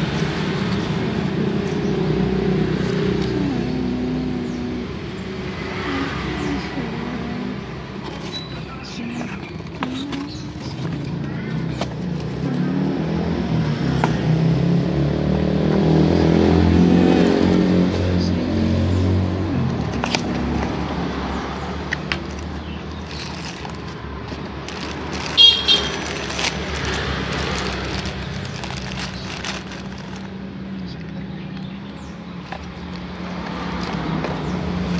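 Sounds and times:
vehicle engine running: 0.0 - 34.9
cardboard and plastic bag rustling: 7.9 - 12.4, 21.9 - 31.0.

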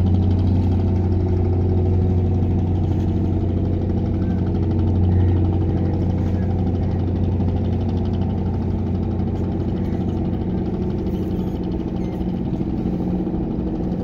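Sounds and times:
boat engine droning: 0.0 - 14.0.

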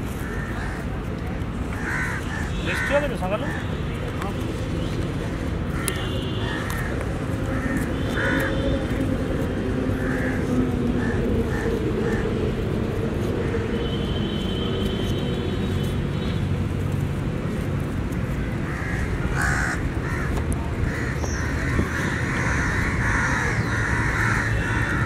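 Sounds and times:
crows cawing: 0.2 - 1.0, 1.7 - 3.7, 5.2 - 12.6, 13.4 - 13.9, 18.4 - 25.0.

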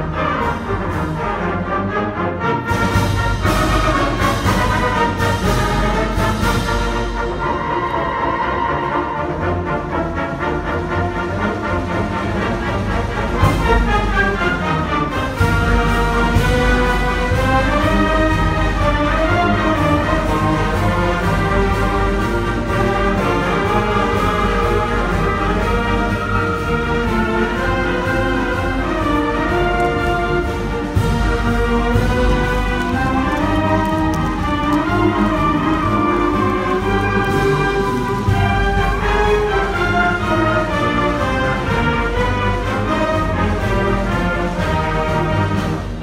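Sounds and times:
concert band playing: 0.0 - 46.0.

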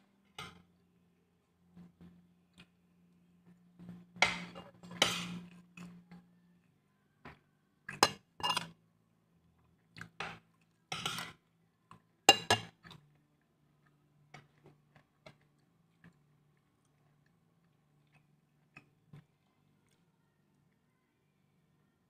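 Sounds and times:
plates clinking: 12.3 - 12.7.

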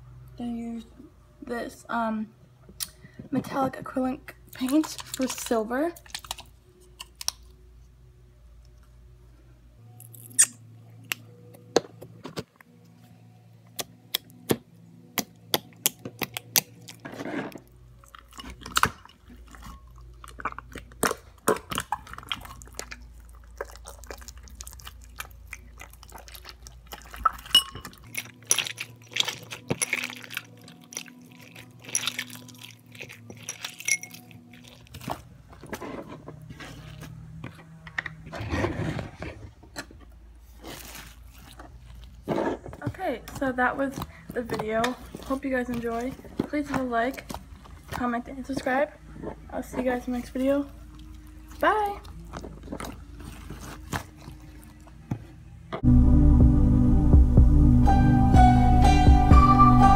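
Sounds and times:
hands squishing slime: 18.0 - 35.8, 40.4 - 42.3, 49.6 - 55.3.

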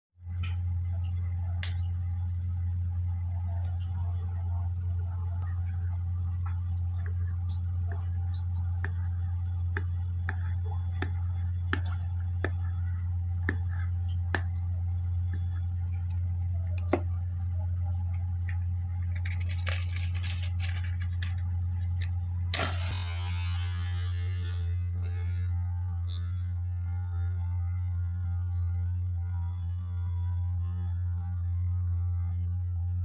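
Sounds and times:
steady low hum: 0.2 - 33.0
match striking and flaring: 22.6 - 24.6.

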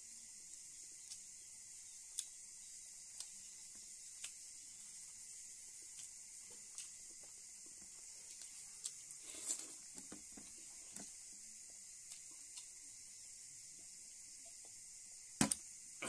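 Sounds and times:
steady high hiss: 0.0 - 16.0
person chewing and smacking: 2.1 - 2.3, 3.1 - 3.4, 4.1 - 4.4, 5.8 - 10.6, 12.0 - 12.7.

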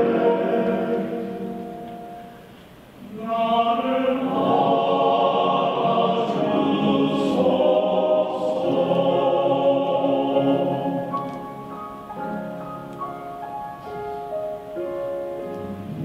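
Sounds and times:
choir singing held notes: 0.0 - 13.0.

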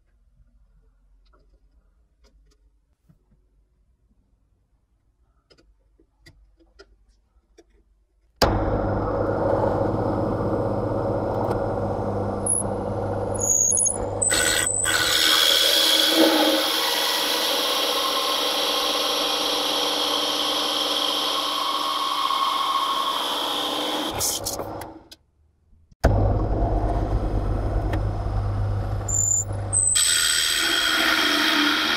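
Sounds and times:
drill press cutting wood: 8.4 - 24.9, 29.1 - 31.9.

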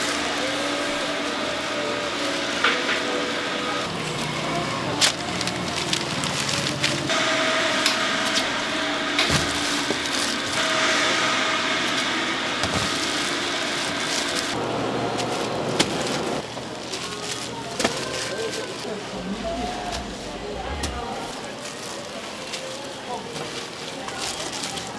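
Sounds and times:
machine hum: 0.0 - 16.6, 18.8 - 22.0.

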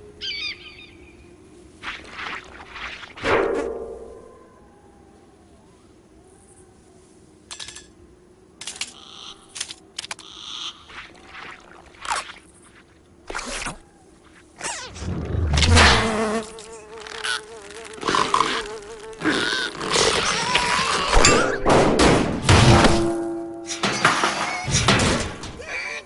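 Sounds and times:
cartoon fly buzzing: 14.6 - 21.1.

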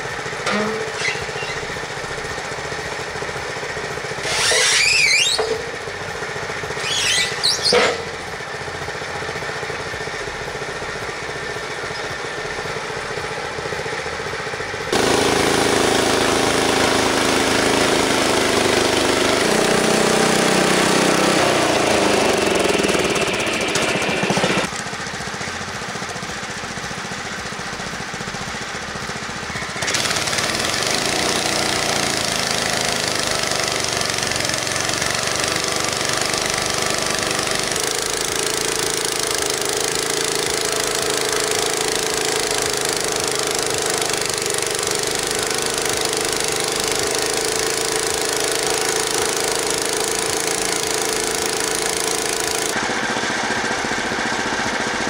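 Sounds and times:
sawmill engine running: 0.0 - 55.0
band blade cutting log: 4.2 - 5.7, 6.8 - 8.2.

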